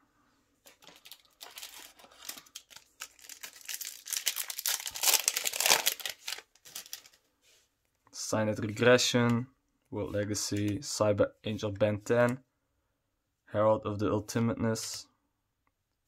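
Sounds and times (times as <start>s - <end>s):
foil wrapper crinkling and tearing: 0.7s - 7.2s.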